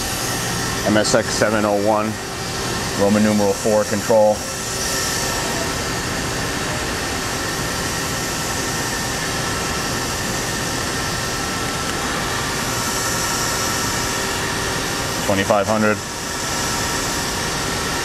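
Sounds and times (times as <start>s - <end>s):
machine hum and hiss: 0.0s - 18.0s.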